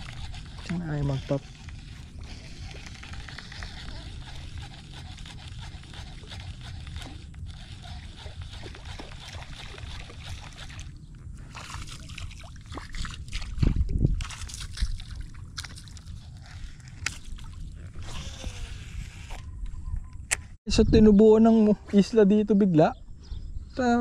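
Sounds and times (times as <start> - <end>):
water sloshing and splashing: 0.0 - 18.6.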